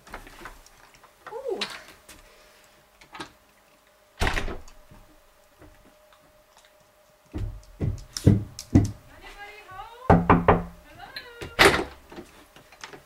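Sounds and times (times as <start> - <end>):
door shutting with a thud: 4.2 - 4.7.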